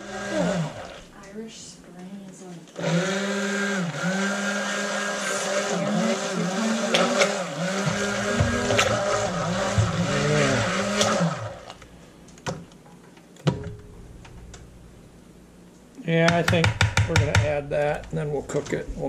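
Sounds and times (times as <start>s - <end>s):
stick blender running: 0.0s - 1.1s, 2.8s - 11.9s
sharp knocks: 16.2s - 17.6s.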